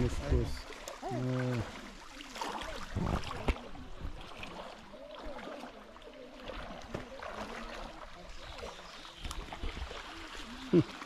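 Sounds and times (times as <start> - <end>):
faint voices: 0.0 - 11.0
feet splashing through water: 0.0 - 11.0.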